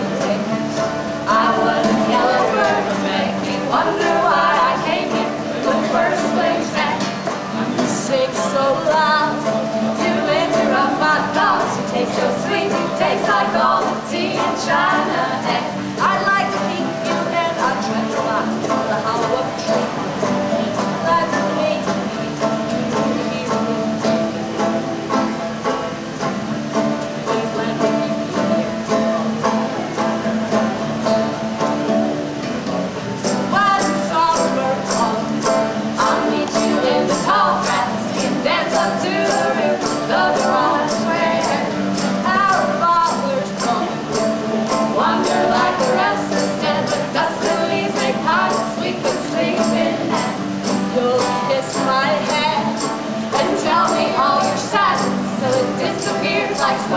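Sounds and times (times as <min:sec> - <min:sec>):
women singing: 0:00.0 - 0:24.4, 0:27.0 - 0:28.8, 0:33.2 - 0:56.9
banjo: 0:00.0 - 0:56.9
tambourine jingling: 0:33.2 - 0:56.9.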